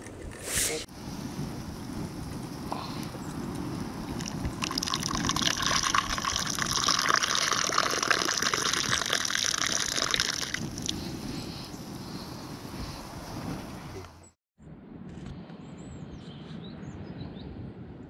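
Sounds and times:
water pouring: 4.1 - 10.9.

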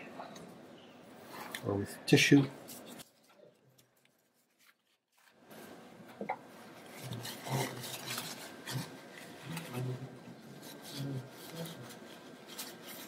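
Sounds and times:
paper tissue wiping: 6.7 - 13.0.

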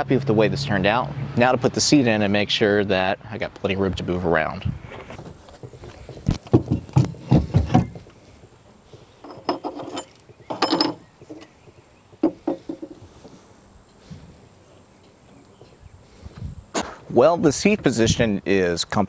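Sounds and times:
seat back clanking and rattling: 5.1 - 8.1.

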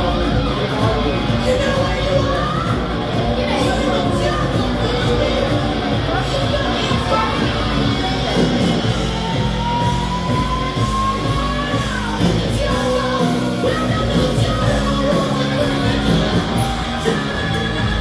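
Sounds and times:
rock music with singer: 0.0 - 18.0.

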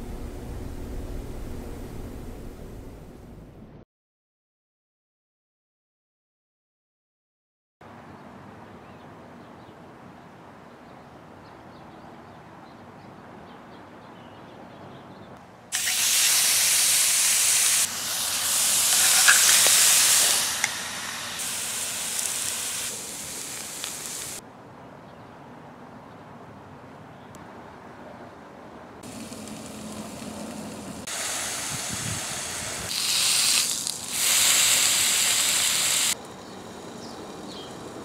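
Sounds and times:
meat sizzling in skillet: 15.8 - 24.4, 29.0 - 36.2.

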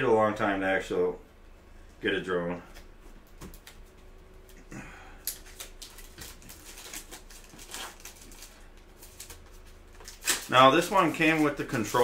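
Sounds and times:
plastic shrink-wrap crinkling: 5.2 - 12.0.

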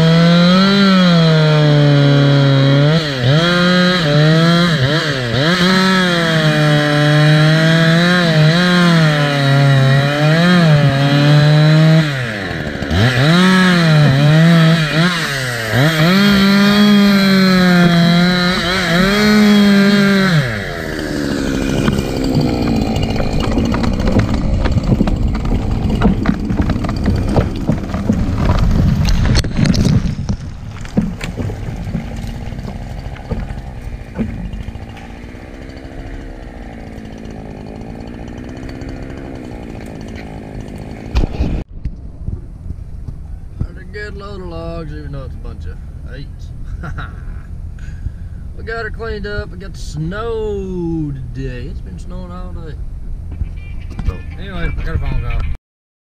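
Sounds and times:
chainsaw cutting tree trunk: 0.0 - 41.6
tree falling rushing and cracking: 11.5 - 41.6
tree landing snaps and knocks: 21.4 - 41.6.

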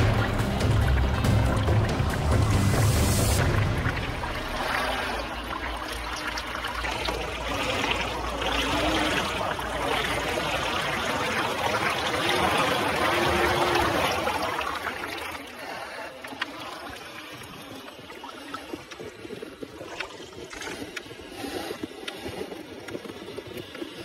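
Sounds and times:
muddy water splashing: 0.0 - 24.0.

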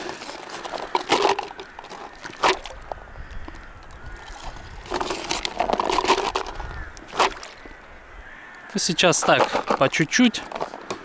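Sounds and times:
corn kernels rattling in plastic: 0.0 - 2.8, 4.3 - 7.5, 9.2 - 10.8
faint bird calls: 0.5 - 4.9, 6.4 - 9.1.

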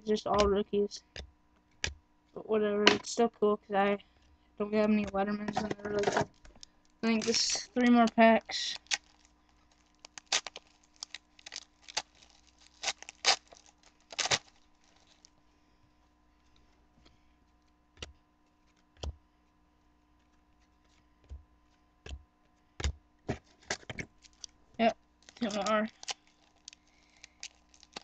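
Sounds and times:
card packs crinkling and clicking: 4.8 - 15.3, 23.4 - 24.6, 25.2 - 28.0.

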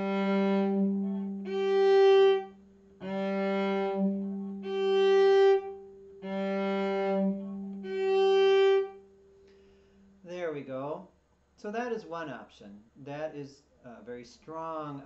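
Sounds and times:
cello bowing sustained notes: 0.0 - 9.4.

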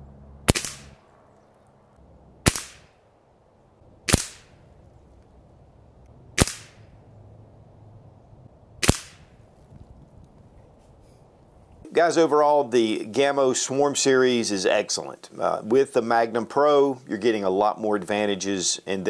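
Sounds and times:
air rifle shots: 0.4 - 1.0, 2.4 - 3.0, 4.1 - 4.6, 6.4 - 6.9, 8.8 - 9.3.

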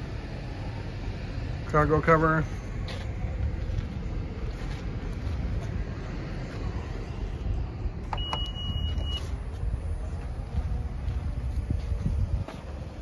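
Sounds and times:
low rumble: 2.4 - 13.0
high-pitched beep: 8.1 - 9.3.

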